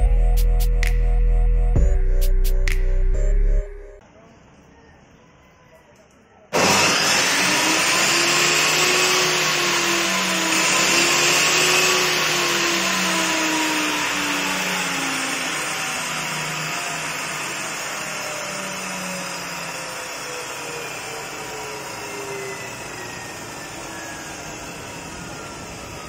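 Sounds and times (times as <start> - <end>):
table saw whirring down: 6.5 - 26.0.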